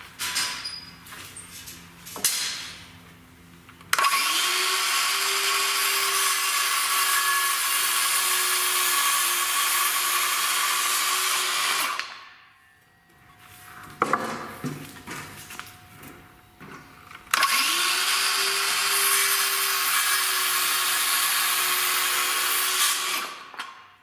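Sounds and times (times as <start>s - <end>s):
circular saw cutting wood: 3.9s - 12.1s, 17.3s - 23.8s.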